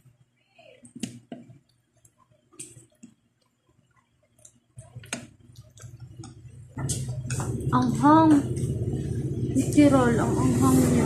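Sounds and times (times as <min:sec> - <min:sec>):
low steady hum: 0:00.0 - 0:11.0
wet chewing sounds: 0:04.4 - 0:07.7.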